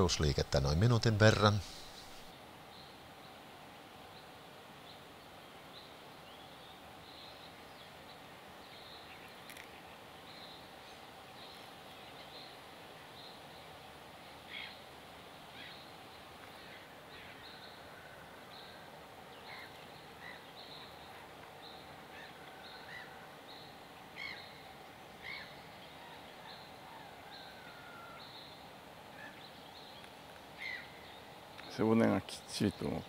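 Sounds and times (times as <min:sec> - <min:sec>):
faint outdoor background hum: 0:00.0 - 0:33.0
small birds chirping: 0:15.5 - 0:33.0.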